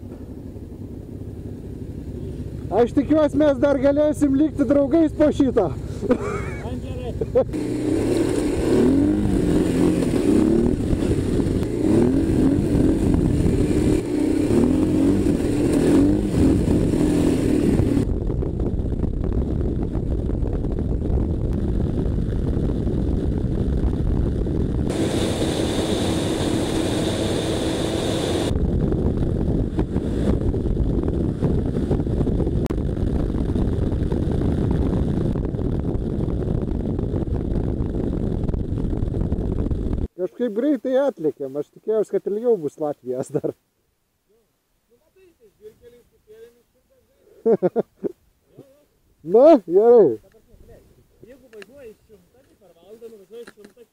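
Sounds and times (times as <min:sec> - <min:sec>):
motorcycle engine revving: 0:00.0 - 0:40.1
wind noise: 0:02.8 - 0:40.1.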